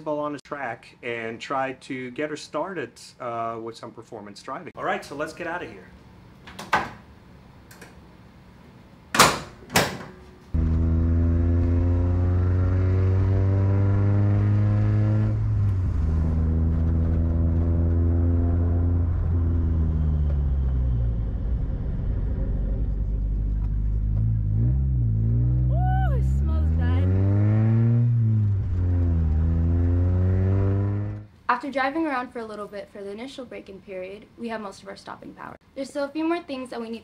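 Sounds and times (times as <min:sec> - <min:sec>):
car engine accelerating: 0:10.6 - 0:31.3.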